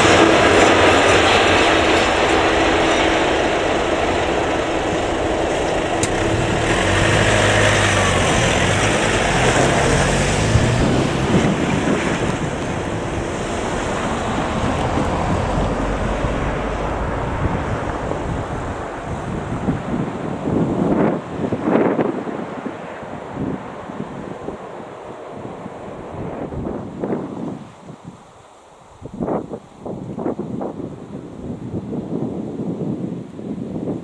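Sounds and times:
cars driving over level crossing: 0.0 - 20.0
freight train rumble: 0.0 - 27.2
wind buffeting microphone: 0.0 - 28.4, 29.0 - 34.0.

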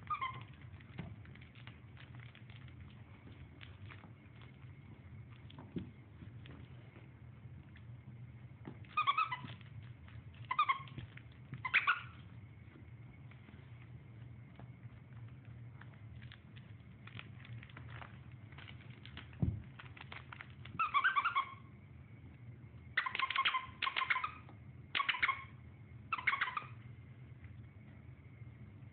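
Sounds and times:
high-pitched squeaking: 10.5 - 12.2.

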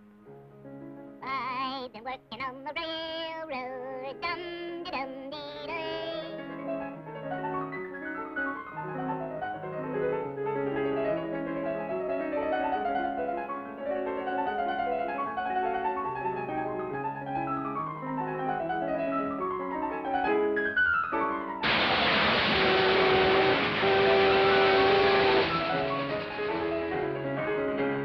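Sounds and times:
piano-like running notes: 5.7 - 28.0.

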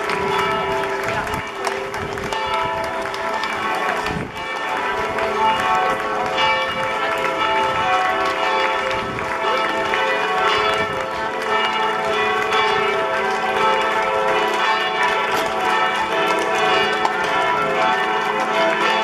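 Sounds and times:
church bells pealing: 0.0 - 19.0.

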